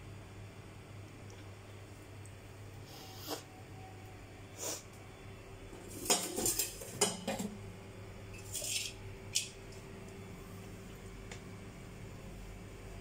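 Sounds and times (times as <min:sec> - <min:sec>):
steel cookware clinking and scraping: 0:05.8 - 0:07.5, 0:08.4 - 0:09.0.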